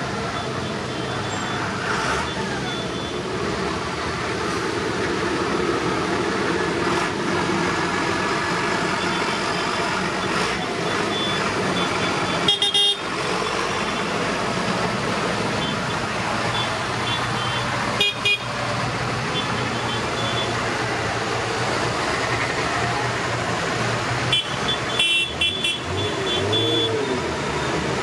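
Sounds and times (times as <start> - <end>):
tractor diesel engines passing: 0.0 - 28.0
horn toot: 24.3 - 27.2.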